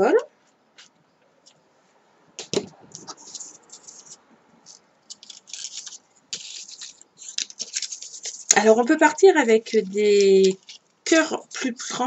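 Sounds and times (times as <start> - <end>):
paper rustling and crinkling: 2.4 - 10.8.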